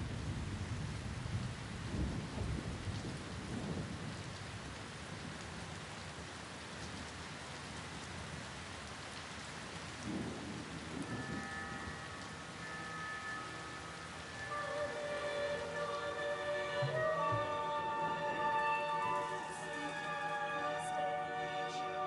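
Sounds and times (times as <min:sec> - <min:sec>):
heavy rain on pavement: 0:00.0 - 0:22.0
thunder rolling: 0:10.0 - 0:12.4.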